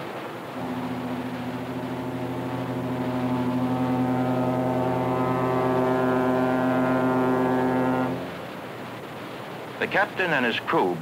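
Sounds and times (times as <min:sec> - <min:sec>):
tugboat horn blast: 0:00.5 - 0:08.6.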